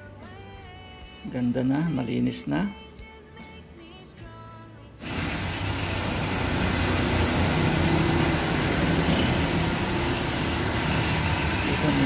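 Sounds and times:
motor droning: 5.0 - 12.0.

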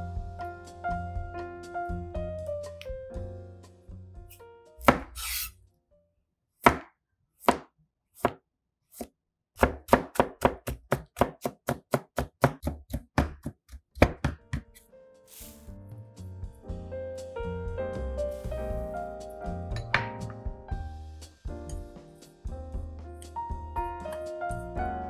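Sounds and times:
knife chopping on cutting board: 4.8 - 5.5, 6.6 - 14.8
salt being sprinkled: 15.3 - 15.8.

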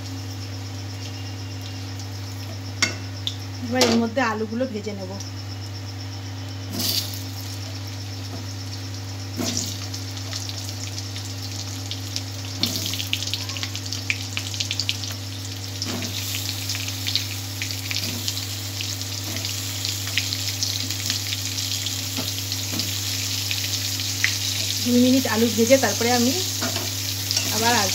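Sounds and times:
potatoes sizzling in hot oil: 6.7 - 27.9.

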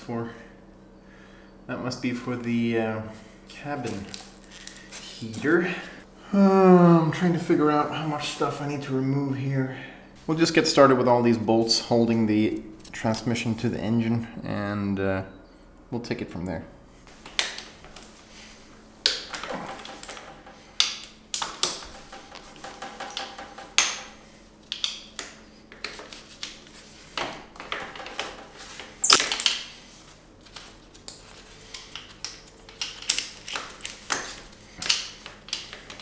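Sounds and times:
knocks: 21.6 - 24.2.

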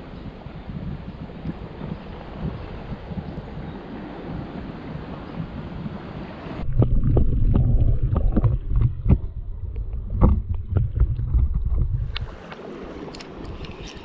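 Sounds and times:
muffled underwater rumble: 0.0 - 12.9.

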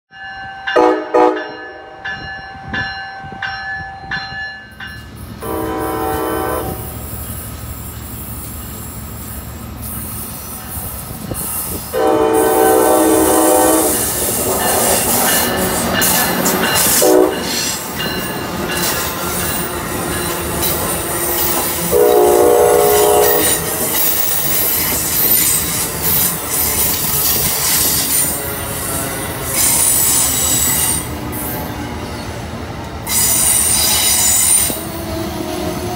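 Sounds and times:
train rumbling past: 0.1 - 35.9
train horn blasts: 0.7 - 2.0, 5.4 - 7.1, 11.9 - 15.2, 16.8 - 17.6, 20.9 - 23.9, 27.0 - 31.1
train wheels squealing: 6.8 - 12.0, 22.8 - 35.9.

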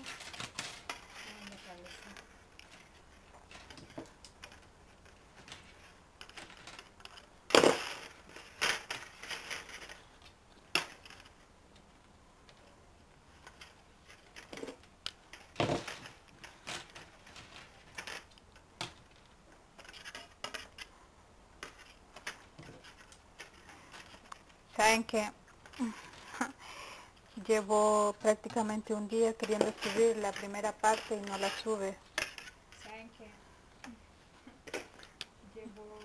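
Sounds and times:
metal wire clicks and scrapes: 13.3 - 21.0, 28.9 - 33.0.

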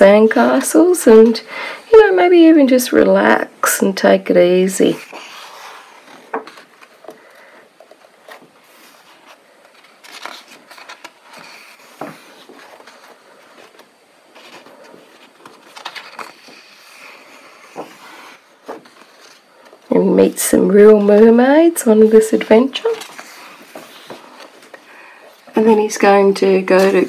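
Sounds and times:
paper pages turning: 4.6 - 19.9, 22.0 - 27.0
paper rustling and crackling: 4.6 - 27.0.

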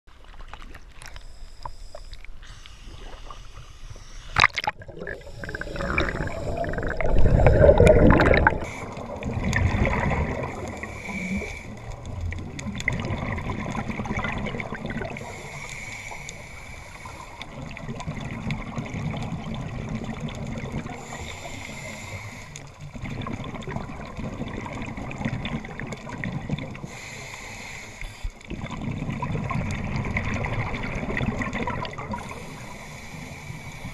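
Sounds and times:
underwater noise: 0.1 - 33.9
regulator hissing breaths: 1.2 - 4.4, 5.1 - 7.0, 10.7 - 12.0, 15.2 - 17.6, 20.9 - 22.8, 26.8 - 28.5, 32.2 - 33.9
exhaled air bubbling: 2.2 - 27.4, 28.2 - 33.9.

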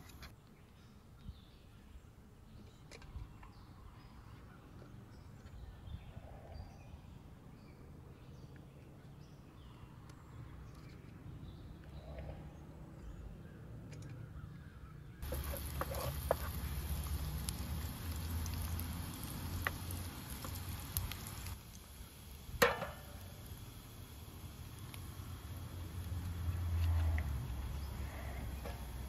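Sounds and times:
onions sizzling in a pot: 15.2 - 29.0
metal pan clanging on burner: 22.6 - 23.1.

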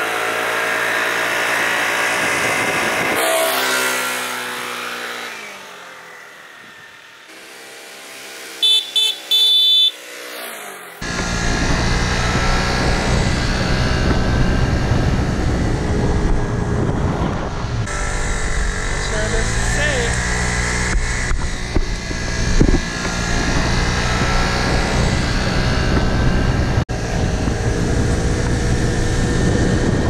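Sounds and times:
scooter engine: 0.0 - 30.0
wind rushing over microphone: 1.6 - 3.8, 11.0 - 30.0
scooter horn toots: 8.6 - 10.1.

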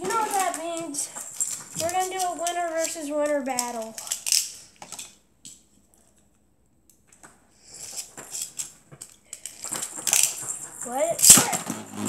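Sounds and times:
plastic toy clicking and rattling: 0.0 - 5.2, 7.7 - 11.6.

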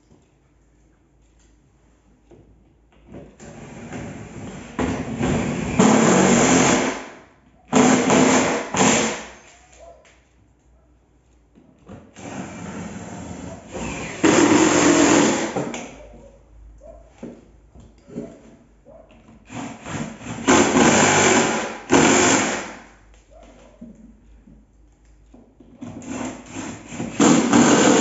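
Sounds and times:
cordless drill running: 13.7 - 15.6, 19.5 - 22.7, 26.0 - 28.0.

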